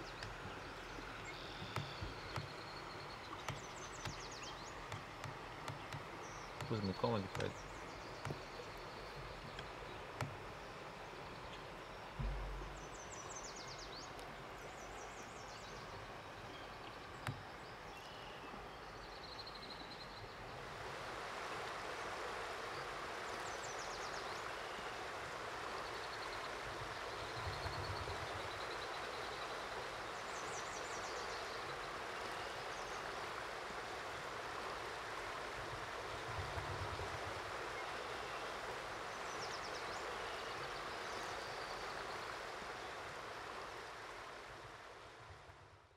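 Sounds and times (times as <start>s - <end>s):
bird calls: 0.0s - 20.3s
light knocks: 1.6s - 2.7s, 3.3s - 10.5s, 12.2s - 12.9s
river rushing: 20.6s - 23.8s.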